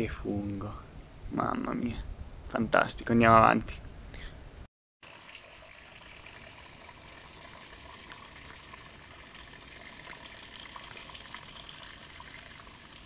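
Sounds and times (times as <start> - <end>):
water trickling down rock: 5.0 - 13.0.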